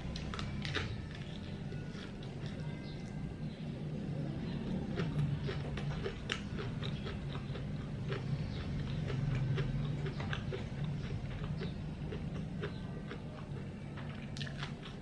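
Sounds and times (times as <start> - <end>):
low steady hum: 0.0 - 15.0
chewing mouth clicks: 4.9 - 15.0.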